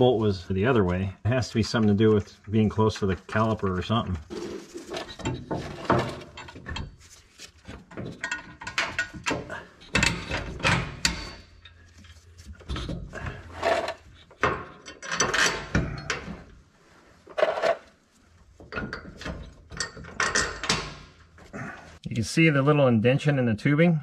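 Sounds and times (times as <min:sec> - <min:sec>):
hand tools clicking and scraping: 0:01.5 - 0:16.5, 0:17.3 - 0:18.0.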